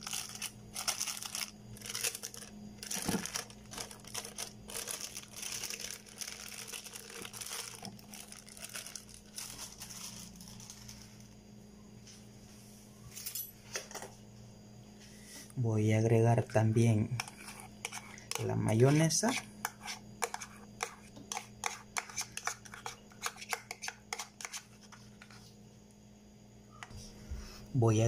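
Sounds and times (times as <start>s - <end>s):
plastic wrapper crinkling: 0.0s - 11.4s
faint low hum: 0.0s - 28.0s.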